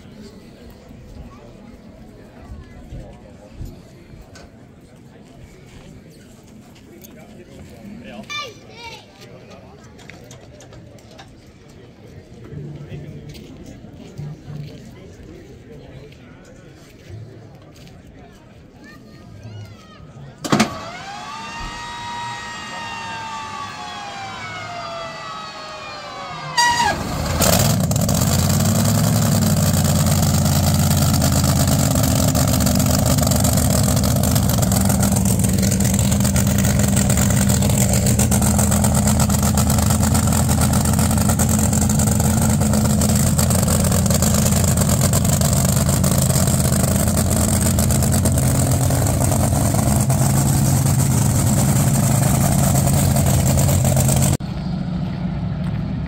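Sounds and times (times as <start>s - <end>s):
car engine starting and running: 20.4s - 56.0s
falling whine: 20.5s - 55.7s.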